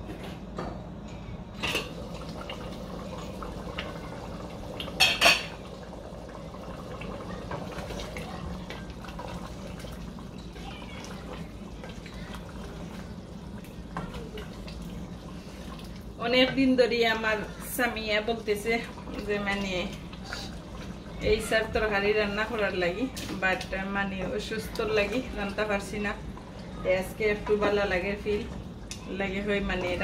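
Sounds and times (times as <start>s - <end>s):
metal cookware clanking: 5.0s - 5.6s.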